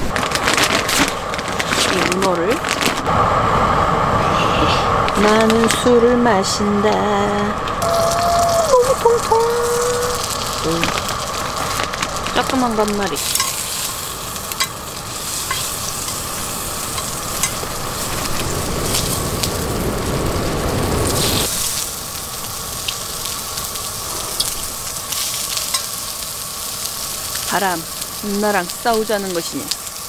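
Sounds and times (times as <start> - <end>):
low rush: 3.0 - 25.2
food sizzling in oil: 7.8 - 30.0
oil popping and spattering: 8.0 - 30.0
tongs clicking: 13.2 - 13.7.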